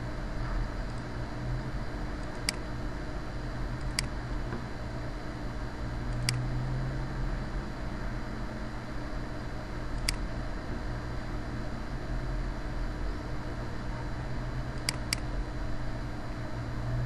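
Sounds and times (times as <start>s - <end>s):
background hum and hiss: 0.0s - 17.0s
computer mouse clicks: 2.2s - 2.6s, 3.8s - 4.1s, 6.1s - 6.4s, 10.0s - 10.2s, 14.8s - 15.3s.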